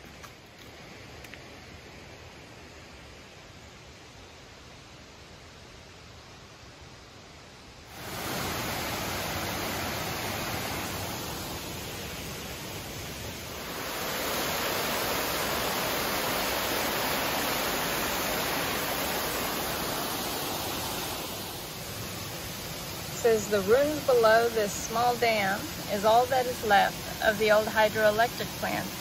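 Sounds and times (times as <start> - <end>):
water rushing over rocks: 7.9 - 29.0.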